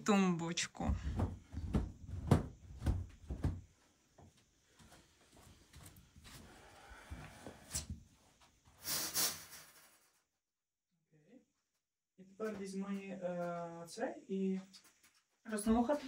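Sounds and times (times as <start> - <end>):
objects knocking and thudding: 0.8 - 3.7
rustling and scraping: 7.2 - 10.3.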